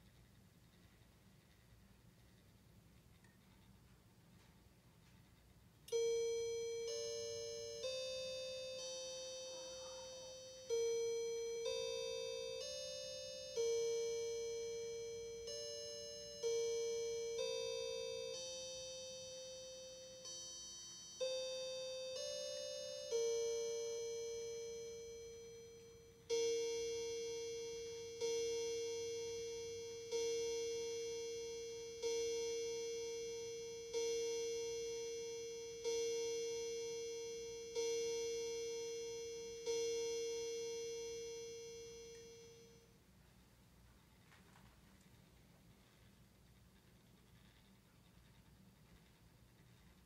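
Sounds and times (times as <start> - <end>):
chime clock tune: 5.9 - 43.0.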